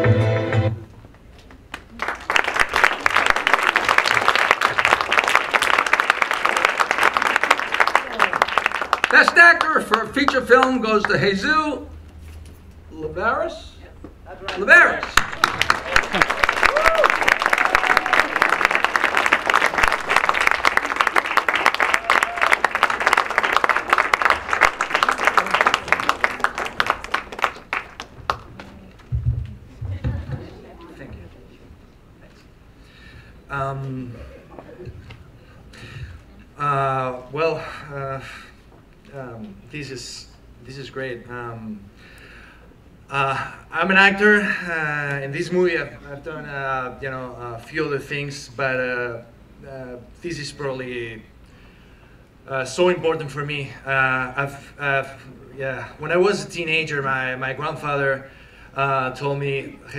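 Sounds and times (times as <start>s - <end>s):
audience applauding: 1.5s - 11.2s, 14.5s - 29.1s.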